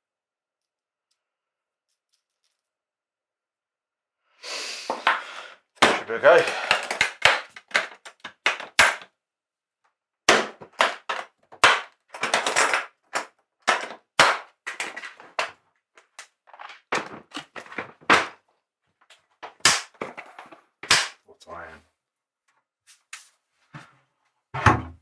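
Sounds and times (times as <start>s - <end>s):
plastic cases set down: 16.5s - 18.4s.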